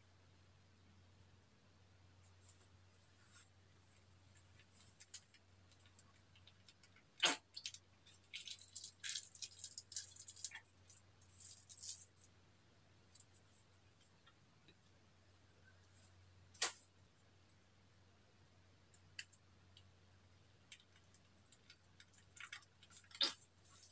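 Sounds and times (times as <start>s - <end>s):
plastic piping bag crinkling: 4.6s - 12.3s, 20.7s - 23.9s.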